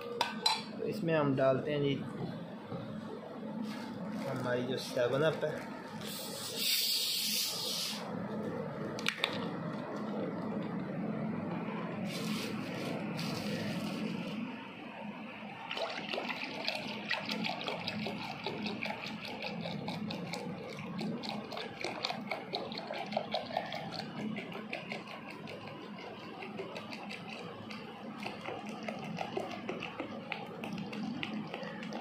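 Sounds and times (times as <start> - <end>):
soda pouring and fizzing: 15.6 - 32.0.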